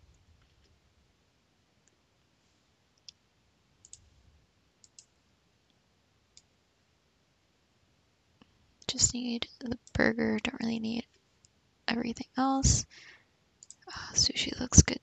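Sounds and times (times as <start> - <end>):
computer mouse clicks: 3.8 - 4.1, 4.8 - 5.1, 13.6 - 13.9.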